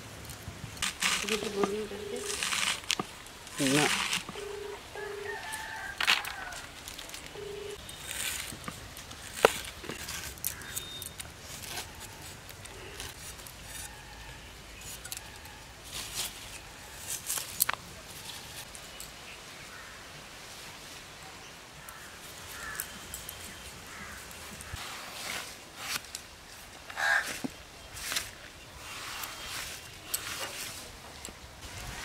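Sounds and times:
rooster crowing: 0:04.4 - 0:06.8.

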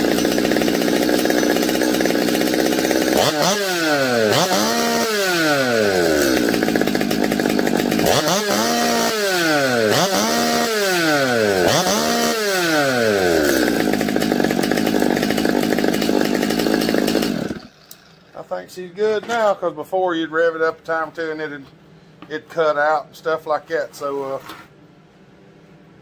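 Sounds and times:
chainsaw engine idling and revving: 0:00.0 - 0:18.4.

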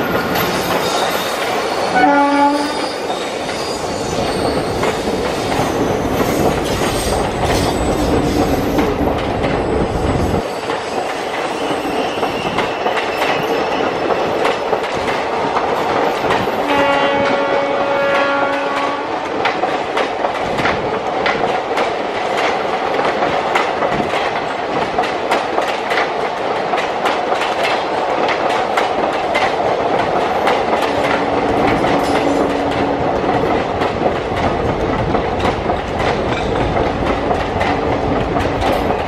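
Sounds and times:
train wheels clattering: 0:00.0 - 0:39.0
locomotive horn: 0:01.9 - 0:02.9, 0:16.7 - 0:19.2, 0:31.0 - 0:33.2.

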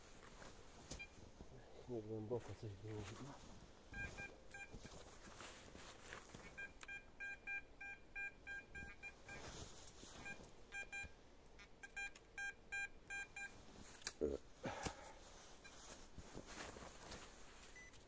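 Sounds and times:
metal detector beeps: 0:03.9 - 0:04.8, 0:06.6 - 0:09.5, 0:10.2 - 0:11.1, 0:11.8 - 0:13.5.

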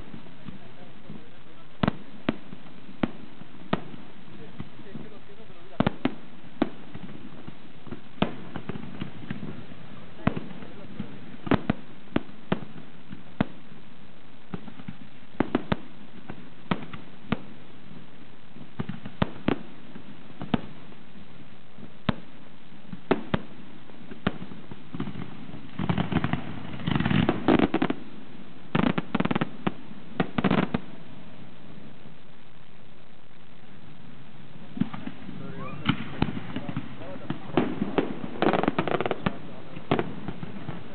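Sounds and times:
rapid crackling bangs: 0:00.0 - 0:40.9
firework shells bursting: 0:34.7 - 0:40.9.

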